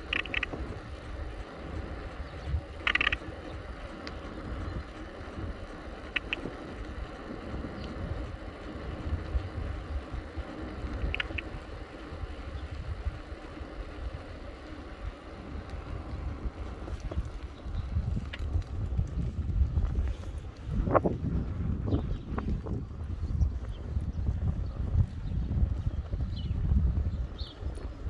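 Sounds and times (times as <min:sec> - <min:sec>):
high double ticks: 0:00.0 - 0:19.2
bicycle tyre and frame rumble: 0:00.0 - 0:28.0
wind buffeting microphone: 0:00.0 - 0:28.0.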